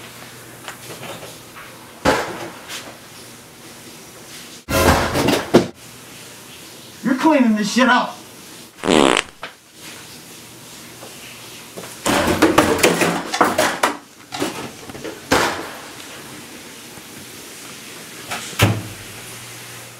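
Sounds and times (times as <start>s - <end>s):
objects clattering and knocking: 12.1s - 15.8s.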